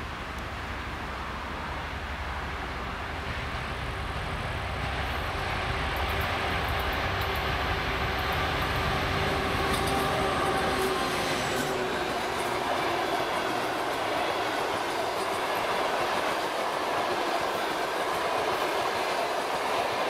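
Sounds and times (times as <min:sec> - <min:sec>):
diesel locomotive engine rumbling: 0:00.0 - 0:20.0
train wheels clicking on rails: 0:00.0 - 0:20.0.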